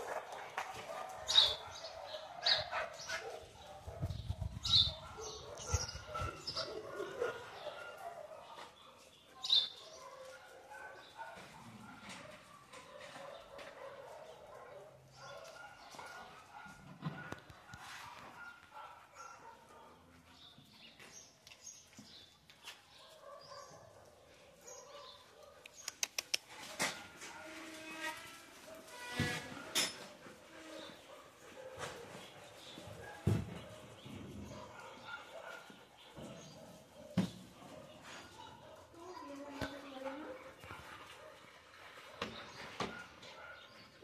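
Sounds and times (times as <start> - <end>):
dogs barking: 0.0 - 20.5, 22.6 - 25.8, 26.6 - 27.6, 29.5 - 39.1, 40.0 - 44.0
faint animal sounds: 23.0 - 44.0.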